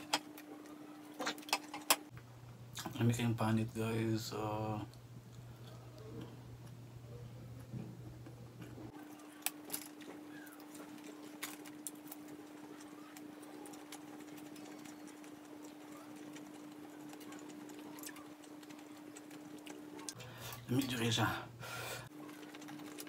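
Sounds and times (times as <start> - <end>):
faint steady hum: 0.0 - 23.0
person chewing: 8.9 - 20.2.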